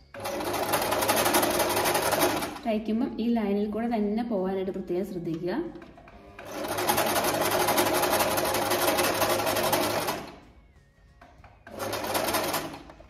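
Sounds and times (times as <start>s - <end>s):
sewing machine stitching: 0.1s - 2.7s, 5.8s - 10.4s, 11.6s - 13.0s.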